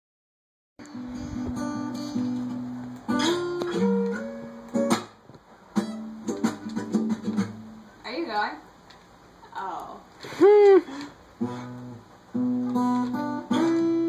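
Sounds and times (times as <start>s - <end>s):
acoustic guitar strumming chords: 0.8s - 7.9s, 11.4s - 14.0s.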